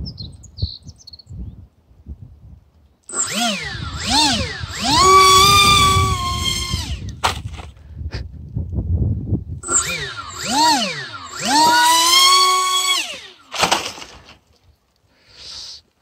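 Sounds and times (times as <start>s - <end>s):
electric motors and propellers whining: 3.1s - 7.8s, 9.6s - 14.5s.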